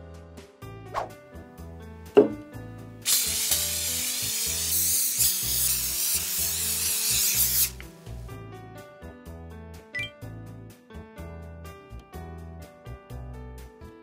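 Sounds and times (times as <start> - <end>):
background music with steady beat: 0.0 - 5.1
aerosol can spraying: 3.0 - 8.2.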